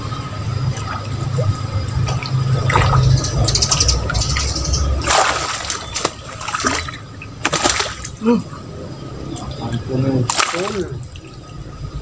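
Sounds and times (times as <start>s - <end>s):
low rumble: 0.0s - 7.0s
fish thrashing and splashing: 0.4s - 8.2s, 10.2s - 11.7s
loud splash: 5.0s - 8.2s, 10.3s - 11.1s.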